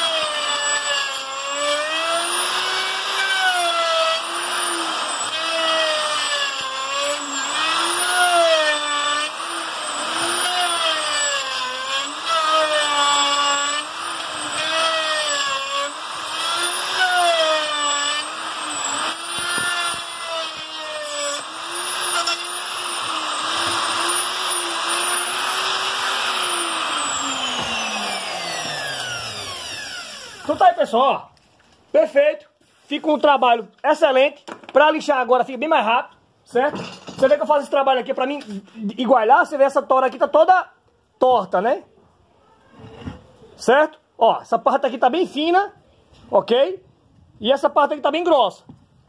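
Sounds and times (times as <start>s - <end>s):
router motor whining: 0.0s - 30.6s
router spinning down: 0.0s - 30.6s.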